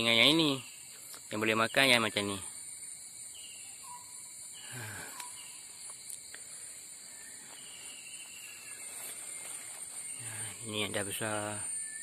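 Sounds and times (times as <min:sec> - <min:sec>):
high-pitched insect drone: 0:00.0 - 0:12.0
fern fronds rustling: 0:06.5 - 0:11.4.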